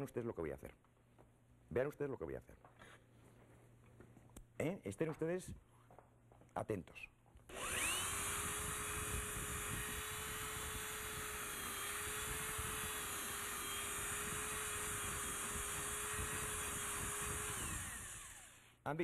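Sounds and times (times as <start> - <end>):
power tool grinding a pan: 7.5 - 18.7.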